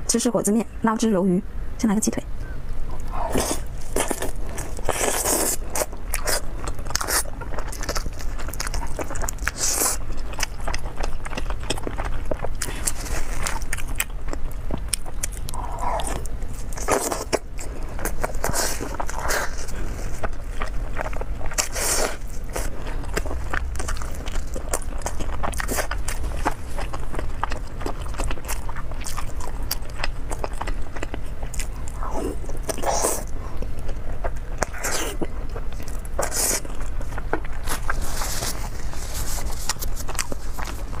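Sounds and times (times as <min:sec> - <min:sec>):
person chewing chicken: 0:03.0 - 0:41.0.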